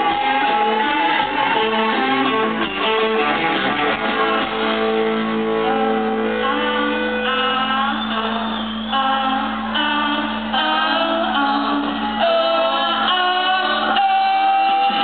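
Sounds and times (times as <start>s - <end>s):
electric guitar: 0.0s - 15.0s
voices singing: 6.3s - 15.0s.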